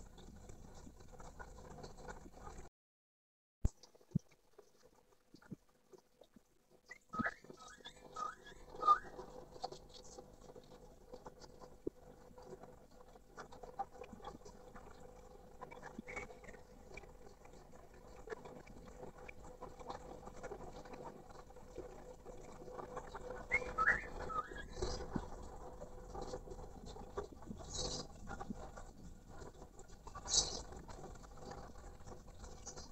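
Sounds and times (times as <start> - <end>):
faint steady hum: 3.8 - 32.9
bird chirping calls: 7.2 - 9.1, 23.5 - 24.9.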